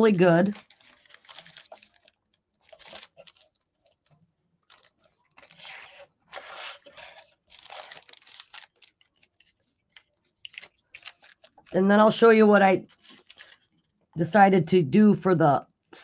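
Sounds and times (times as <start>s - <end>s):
paper rustling and scratching: 0.0s - 11.8s, 12.9s - 13.9s.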